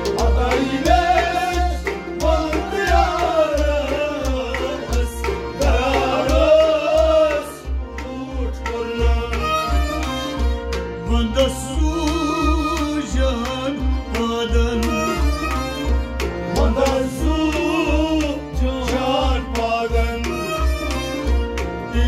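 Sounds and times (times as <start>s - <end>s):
hand drum beating: 0.0s - 7.4s
man singing: 0.0s - 9.9s, 11.0s - 21.3s
harmonium: 0.0s - 22.0s.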